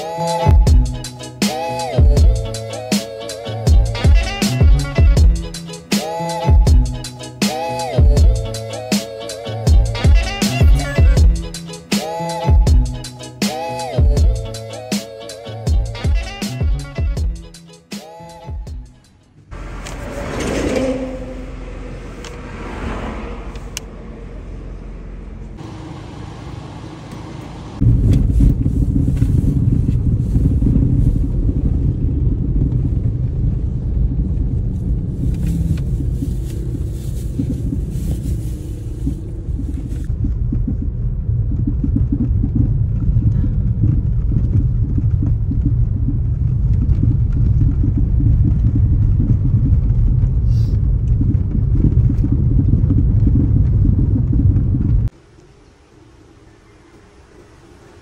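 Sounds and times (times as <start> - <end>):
car rumble from inside cabin: 19.5 - 55.1.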